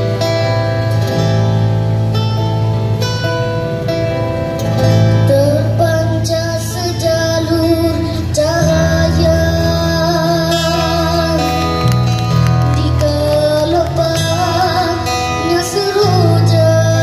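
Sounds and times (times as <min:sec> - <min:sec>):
acoustic guitar: 0:00.0 - 0:17.0
electric bass: 0:00.0 - 0:17.0
boy singing with vibrato: 0:05.1 - 0:17.0.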